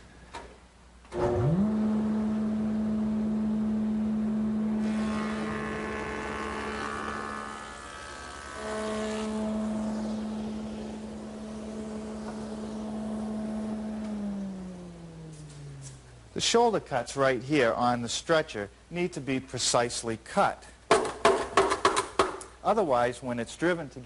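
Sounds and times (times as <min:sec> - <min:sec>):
table saw motor humming: 0:01.2 - 0:16.1
saw blade cutting board: 0:04.8 - 0:13.0.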